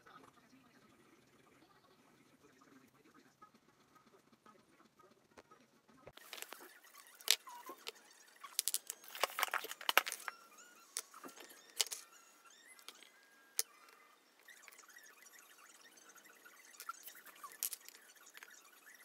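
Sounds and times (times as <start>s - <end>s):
plastic crinkling: 6.2s - 10.4s
screws rattling in plastic bag: 6.2s - 10.4s, 11.0s - 12.0s, 16.8s - 18.5s.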